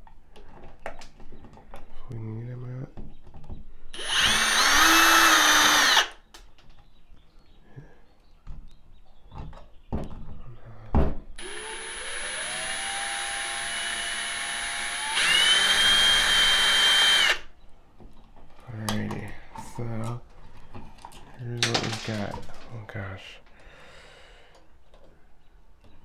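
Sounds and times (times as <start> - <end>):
cordless drill motor whine: 3.9 - 6.2, 11.4 - 17.5.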